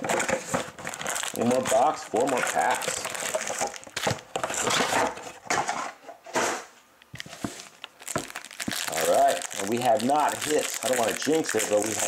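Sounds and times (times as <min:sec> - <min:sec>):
foil packs crinkling: 0:00.0 - 0:05.1, 0:07.6 - 0:12.0.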